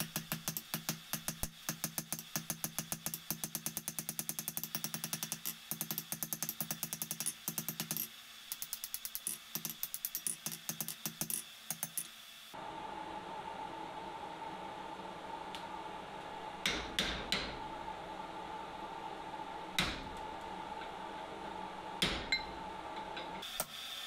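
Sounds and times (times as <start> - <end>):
hammer ringing on hot steel: 22.0 - 22.6.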